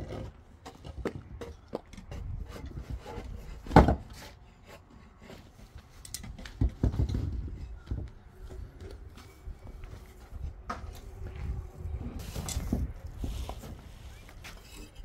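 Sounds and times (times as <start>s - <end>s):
wood rubbing: 12.1s - 15.0s.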